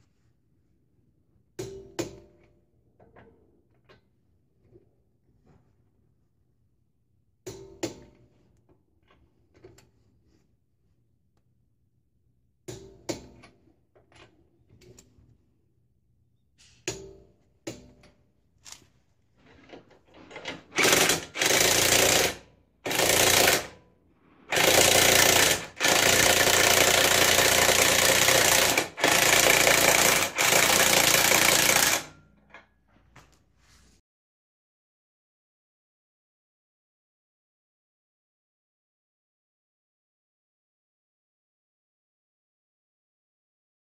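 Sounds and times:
tool handling clicks and knocks: 0:16.6 - 0:21.2
impact wrench rattling: 0:20.2 - 0:23.7, 0:24.5 - 0:32.1.

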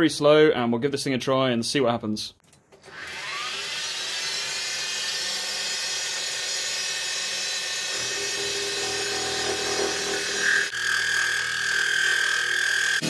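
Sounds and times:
milling machine spindle whine: 0:02.9 - 0:13.0.

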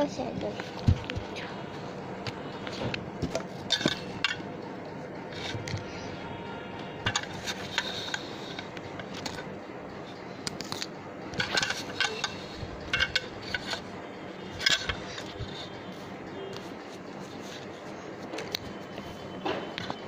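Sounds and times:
toy dishes clinking: 0:03.3 - 0:04.5, 0:07.0 - 0:09.5, 0:10.5 - 0:13.9, 0:14.5 - 0:15.7.

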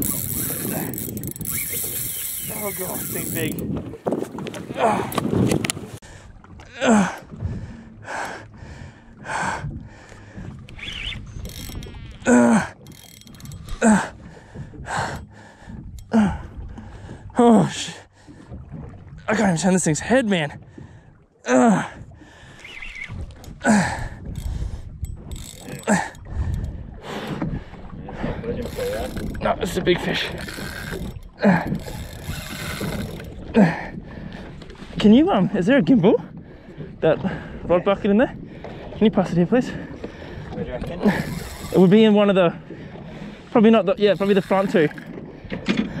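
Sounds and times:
fishing reel drag releasing line: 0:00.0 - 0:03.6, 0:30.3 - 0:31.2, 0:31.8 - 0:33.2
reel mechanism noise: 0:00.0 - 0:05.8, 0:10.4 - 0:14.2, 0:22.6 - 0:27.5, 0:28.6 - 0:33.4, 0:40.8 - 0:42.2, 0:43.4 - 0:46.0.

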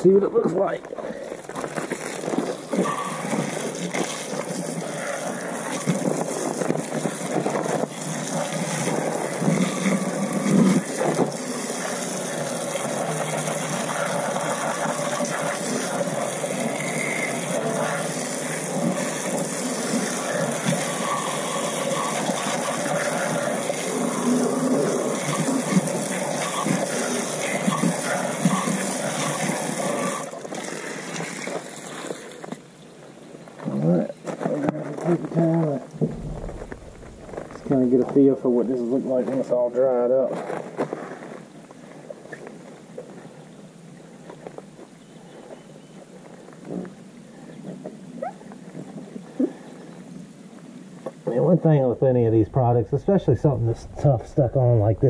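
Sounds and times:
garden hose spraying water: 0:02.0 - 0:32.3.

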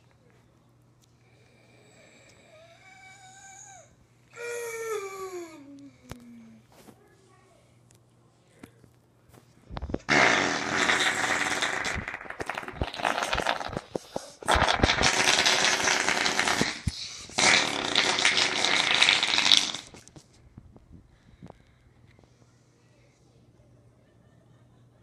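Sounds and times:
child making growling noises: 0:02.5 - 0:06.6.

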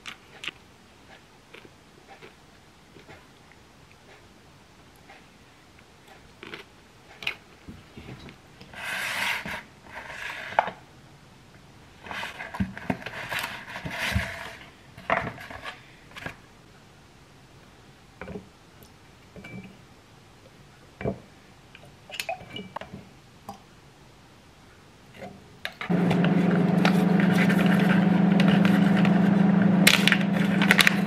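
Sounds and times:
plastic and cardboard rustling: 0:12.0 - 0:16.4, 0:26.1 - 0:31.0.

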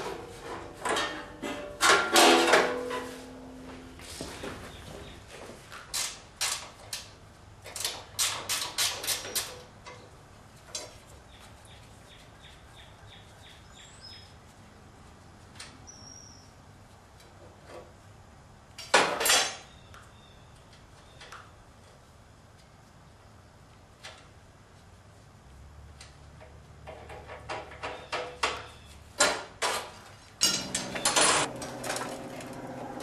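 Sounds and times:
metal clatter: 0:29.6 - 0:33.0
metal tool clinks on bolt: 0:30.4 - 0:31.5.

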